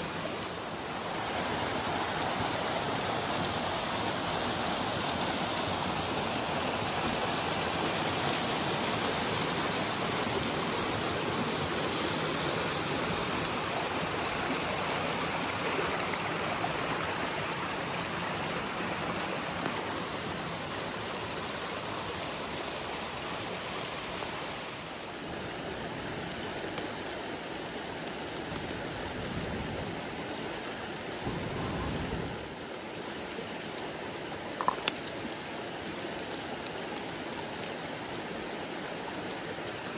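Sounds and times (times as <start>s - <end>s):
mountain stream splashing over cascade: 0.0s - 39.9s
faint sharp clicks: 34.6s - 35.1s.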